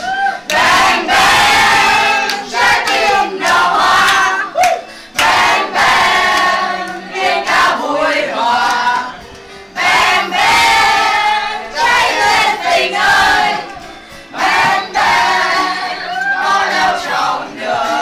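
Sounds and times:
group chanting loudly: 0.5 - 4.4, 9.8 - 13.7.

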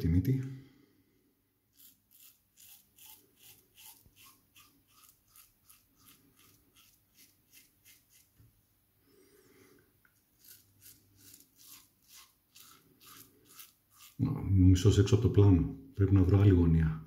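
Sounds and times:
razor scraping stubble: 1.7 - 8.4, 10.1 - 14.5.

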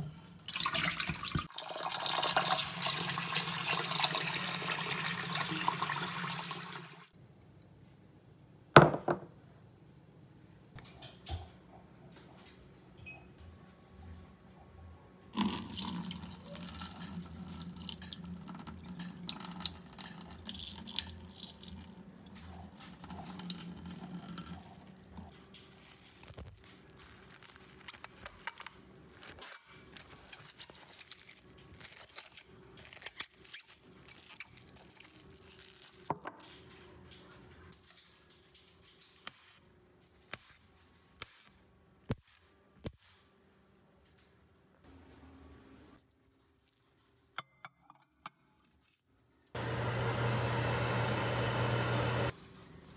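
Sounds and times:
tap water running into a bowl: 0.0 - 7.0, 15.4 - 22.0
water poured into a steel sink: 0.0 - 7.1, 15.4 - 22.0
cling wrap crinkling and clicking: 25.3 - 41.4.

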